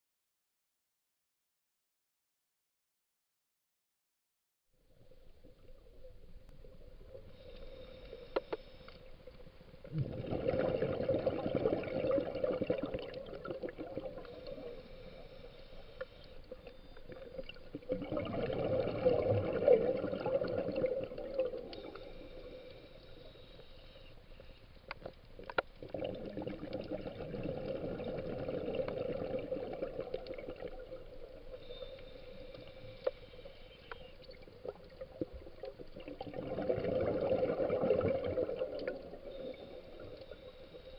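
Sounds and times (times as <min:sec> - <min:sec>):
exhaled bubbles underwater: 0:09.2 - 0:15.8, 0:16.4 - 0:23.2, 0:25.4 - 0:40.9
regulator hiss: 0:14.2 - 0:17.0, 0:21.7 - 0:24.7.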